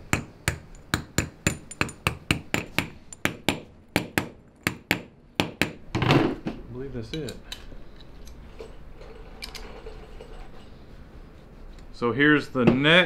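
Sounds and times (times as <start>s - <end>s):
hammer striking metal: 0.0s - 5.8s.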